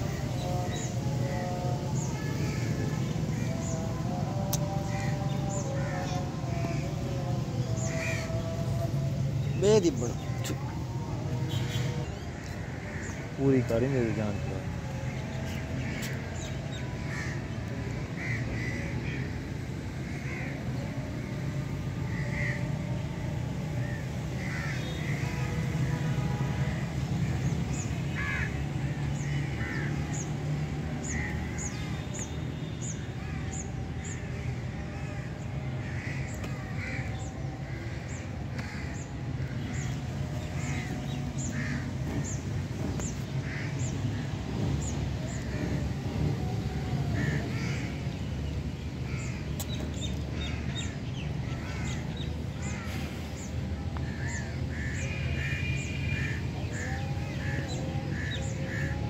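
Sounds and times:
crows cawing: 4.4s - 6.9s, 7.7s - 8.5s, 12.4s - 14.3s, 15.1s - 19.3s, 20.0s - 20.6s, 22.1s - 22.7s, 23.8s - 25.3s, 28.1s - 30.2s, 31.0s - 31.8s, 32.9s - 42.4s, 43.0s - 44.2s, 47.1s - 48.0s, 49.1s - 49.7s, 50.3s - 58.9s.

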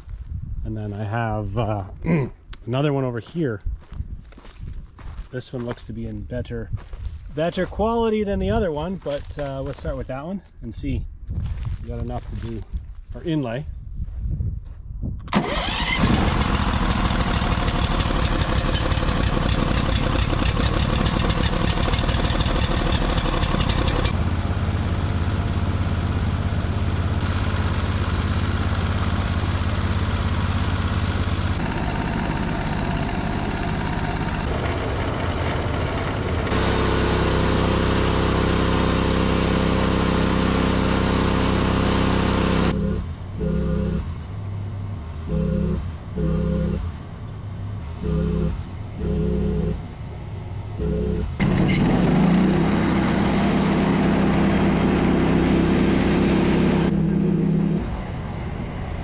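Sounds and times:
sawmill gasoline engine running: 15.3s - 44.2s, 45.0s - 47.0s, 47.8s - 49.9s, 50.8s - 58.9s.

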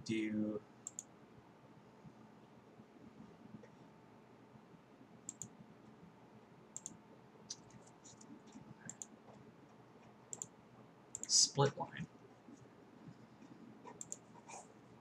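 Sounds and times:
faint steady hum: 0.0s - 15.0s
computer mouse clicking: 0.8s - 1.1s, 5.3s - 5.6s, 6.8s - 9.2s, 10.3s - 10.5s, 11.1s - 11.4s, 13.4s - 14.6s.

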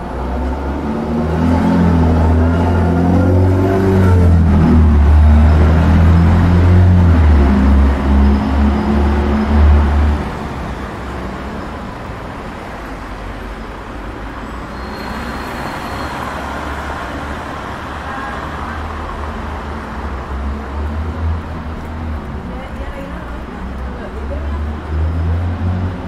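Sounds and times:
deep engine rumble: 0.0s - 12.2s
passing cars road noise: 0.0s - 26.0s.

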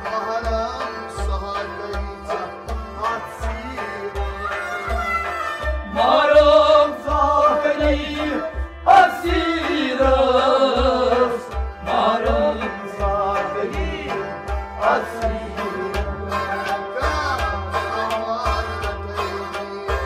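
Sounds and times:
hand drum beat: 0.0s - 20.0s
sustained instrumental tones: 0.0s - 20.0s
man singing ornamented phrases: 5.8s - 20.0s.

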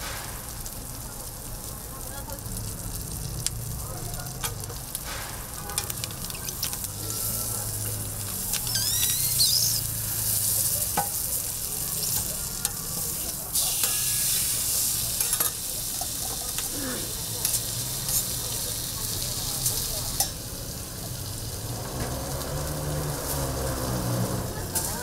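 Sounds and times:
food sizzling on a griddle: 0.0s - 25.0s
metal tongs and spatula clicks: 12.0s - 14.0s, 17.4s - 18.4s, 19.6s - 20.4s.

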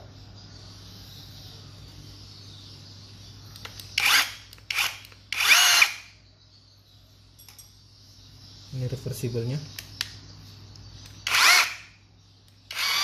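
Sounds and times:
rotary hammer motor whine: 4.0s - 6.0s, 11.2s - 11.9s, 12.7s - 13.0s.

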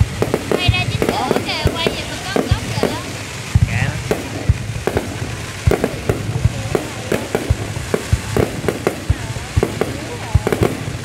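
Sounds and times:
fireworks bangs and pops: 0.0s - 11.0s
steady hiss: 0.0s - 11.0s.

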